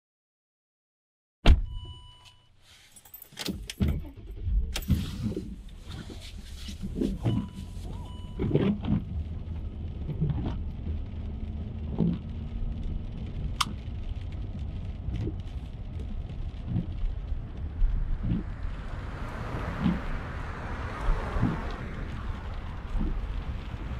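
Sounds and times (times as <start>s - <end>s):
car engine rumbling: 2.6s - 23.9s
keys jangling: 2.8s - 3.8s.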